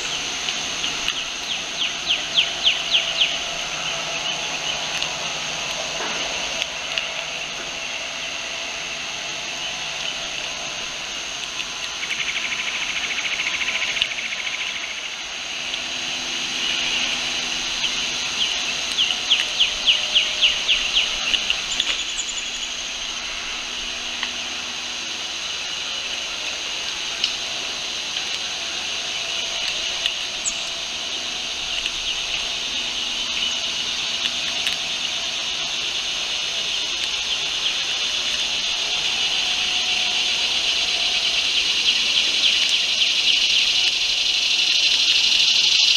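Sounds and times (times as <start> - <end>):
insect chorus trilling: 0.0 - 45.9.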